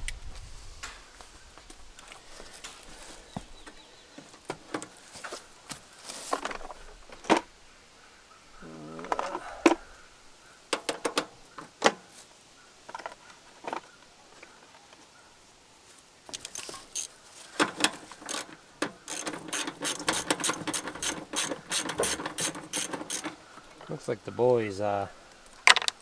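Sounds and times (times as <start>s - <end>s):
hands handling mower parts: 2.0s - 7.5s, 10.7s - 12.2s, 16.3s - 24.6s, 25.5s - 26.0s.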